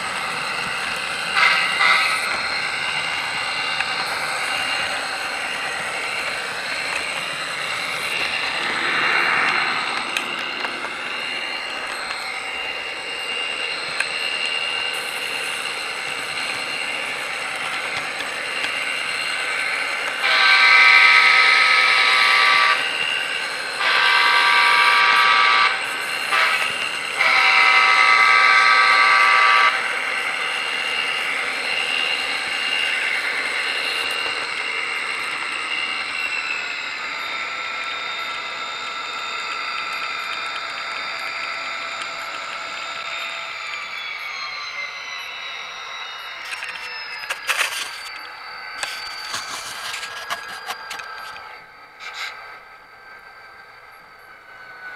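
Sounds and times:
model train running hum: 0.0 - 54.9
model train horn blasts: 1.3 - 2.4, 20.2 - 22.8, 23.8 - 29.9.

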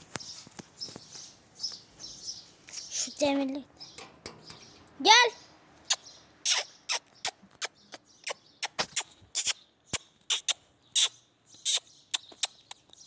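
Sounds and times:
person making kissing sounds: 5.9 - 13.0.

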